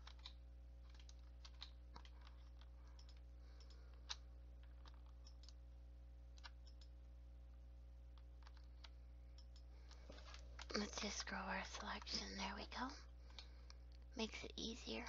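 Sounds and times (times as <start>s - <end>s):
mouse and keyboard clicks: 0.0s - 5.6s, 6.4s - 7.0s, 8.2s - 10.9s
low electrical hum: 0.0s - 15.0s.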